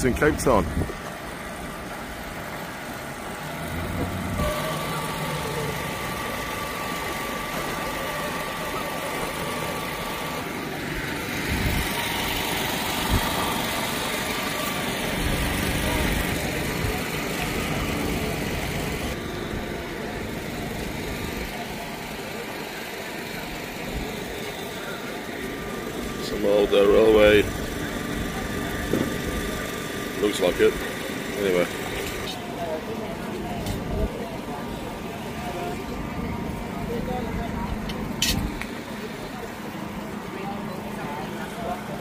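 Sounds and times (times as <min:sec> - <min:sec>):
engine-like hum and rumble: 0:00.0 - 0:42.0.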